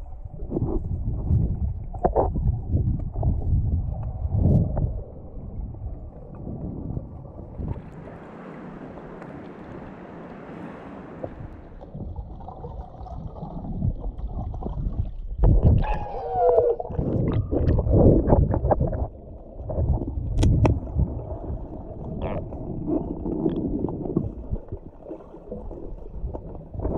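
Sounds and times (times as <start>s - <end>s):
muffled underwater churning: 0.0s - 26.9s
water sloshing and splashing: 0.0s - 26.9s
wind and waves hissing: 4.6s - 12.0s
falling tone: 15.8s - 17.6s.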